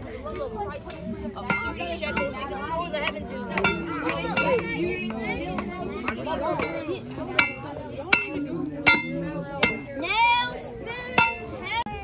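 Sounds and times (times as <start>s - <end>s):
people's voices: 0.0s - 12.0s
sharp hammer strikes: 7.4s - 10.0s, 11.2s - 11.5s.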